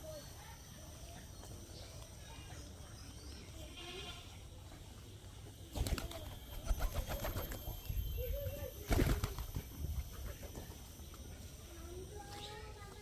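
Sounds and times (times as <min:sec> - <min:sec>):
pigeons pecking and fluttering: 0:05.1 - 0:13.0.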